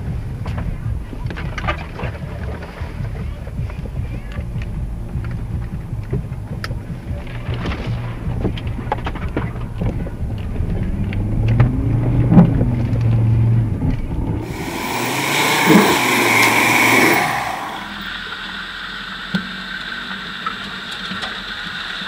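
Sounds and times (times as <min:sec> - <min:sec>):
mud and branches striking vehicle: 0:00.0 - 0:14.6
engine droning at low revs: 0:00.0 - 0:22.0
vehicle driving through woods: 0:00.0 - 0:22.0.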